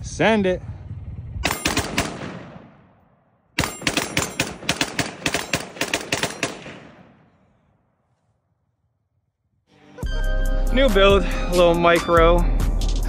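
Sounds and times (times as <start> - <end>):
rifle rapid gunshots: 1.4 - 2.8, 3.6 - 7.3
gunshot echo: 1.4 - 3.0, 3.6 - 7.5.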